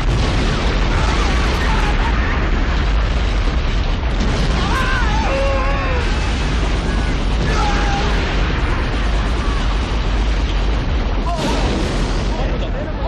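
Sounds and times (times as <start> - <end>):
lava fountain deep rumble: 0.0 - 13.0
people screaming: 0.8 - 2.7, 4.4 - 10.1.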